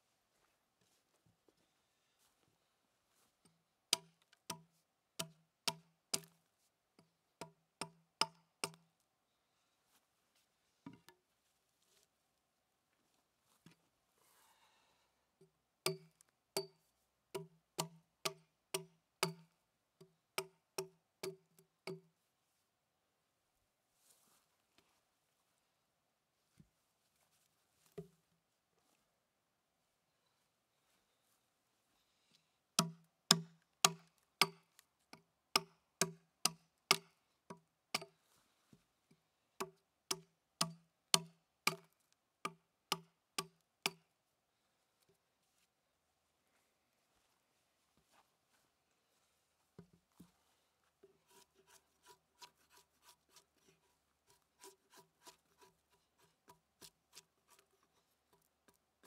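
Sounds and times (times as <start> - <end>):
hatchet chopping log: 3.9 - 6.3, 7.4 - 8.8, 15.9 - 16.7, 17.4 - 19.5, 20.4 - 22.0, 32.8 - 34.6, 35.5 - 37.1, 39.6 - 41.9
hatchet chopping into a log: 32.8 - 34.6, 35.6 - 37.1, 40.1 - 41.9.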